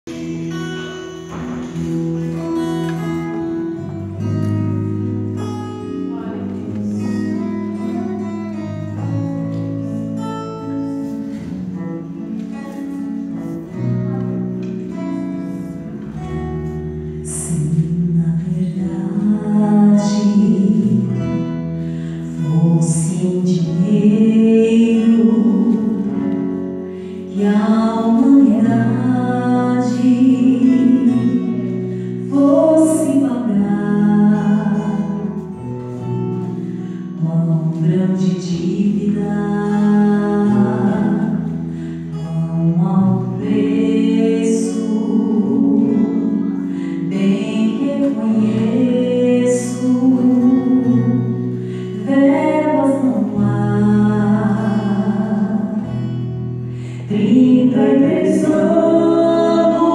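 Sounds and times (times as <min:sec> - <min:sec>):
acoustic guitar chords: 0:00.0 - 0:59.9
woman singing: 0:17.2 - 0:59.9.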